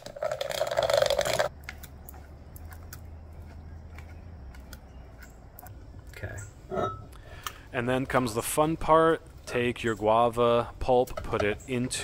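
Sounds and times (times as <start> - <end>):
food mill grinding and scraping: 0.0 - 4.7.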